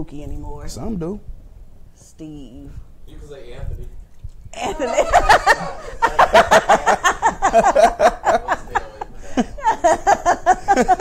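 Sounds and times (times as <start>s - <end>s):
man and woman laughing: 4.6s - 11.0s.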